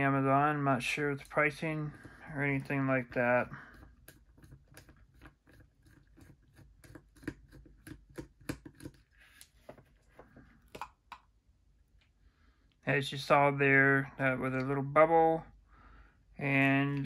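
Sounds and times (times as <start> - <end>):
plastic shell handled: 1.9 - 11.3.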